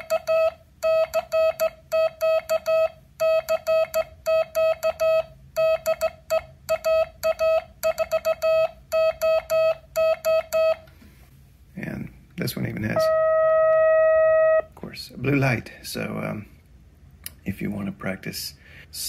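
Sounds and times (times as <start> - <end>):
morse code beeps: 0.0 - 10.8, 13.0 - 14.7.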